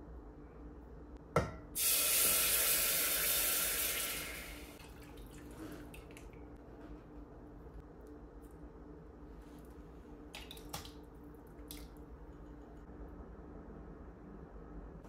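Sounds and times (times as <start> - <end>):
water running from a tap: 1.8 - 6.0
water dripping: 3.7 - 6.5, 10.3 - 12.6.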